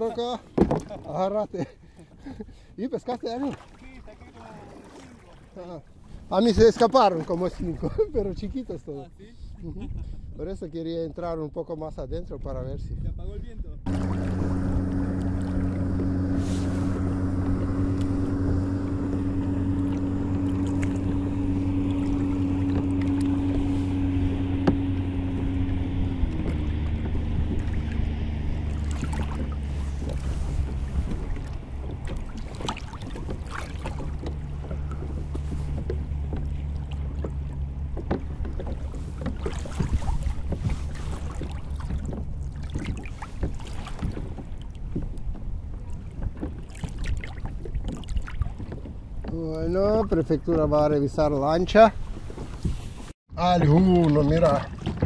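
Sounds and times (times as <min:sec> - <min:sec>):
motorboat engine running: 0:13.8 - 0:55.0.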